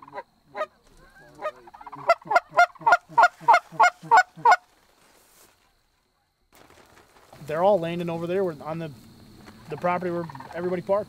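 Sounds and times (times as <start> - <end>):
goose call honks and clucks: 0.0 - 4.7
low murmuring goose call: 0.0 - 4.7.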